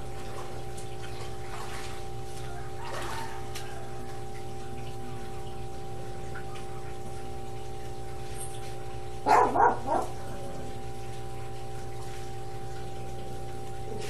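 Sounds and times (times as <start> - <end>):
steady low hum: 0.0 - 14.0
dog barking: 9.2 - 10.4.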